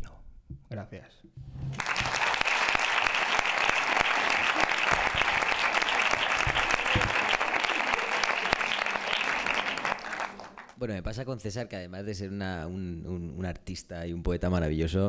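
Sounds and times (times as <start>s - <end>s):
audience applauding: 1.7s - 10.8s.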